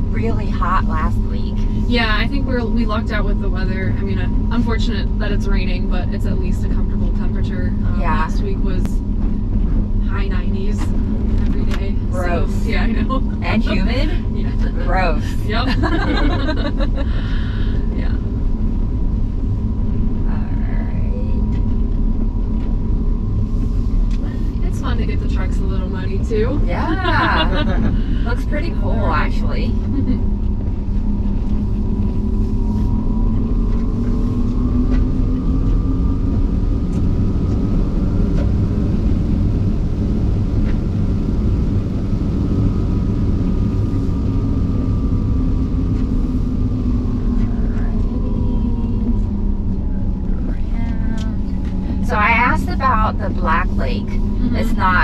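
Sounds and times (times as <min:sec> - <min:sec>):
tyres and suspension rumbling: 0:00.0 - 0:55.0.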